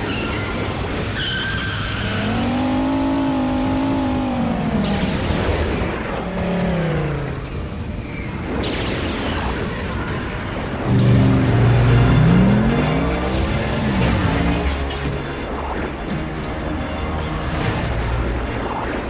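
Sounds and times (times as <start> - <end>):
howling wind whine: 0.0 - 8.6, 9.6 - 16.4.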